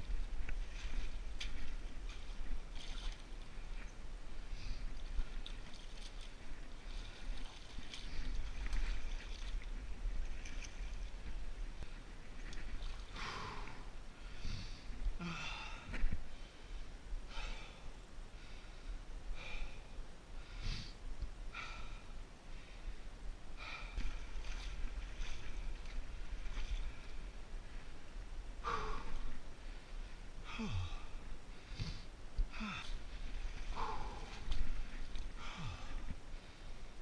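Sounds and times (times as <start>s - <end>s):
man breathing hard: 28.6s - 33.0s, 33.6s - 34.5s, 35.4s - 36.8s.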